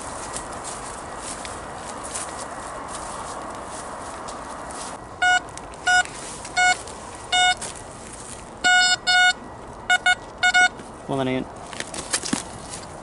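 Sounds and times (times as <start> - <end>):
metal detector short beeps: 5.2 - 7.6, 8.6 - 10.8.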